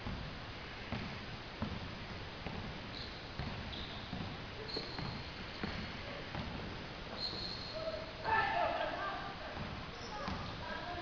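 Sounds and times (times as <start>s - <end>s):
basketball dribbling thuds: 0.0s - 8.4s, 9.5s - 10.6s
sneaker squeaks on floor: 2.4s - 8.1s, 9.6s - 10.6s.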